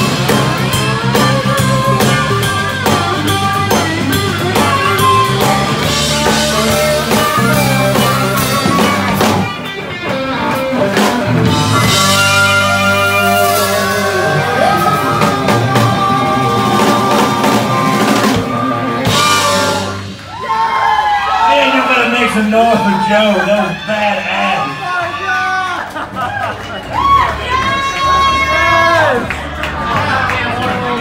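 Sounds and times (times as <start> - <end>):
amplified harmonica wailing: 0.0 - 20.2
drum kit: 0.0 - 29.3
electric guitars: 0.0 - 31.0.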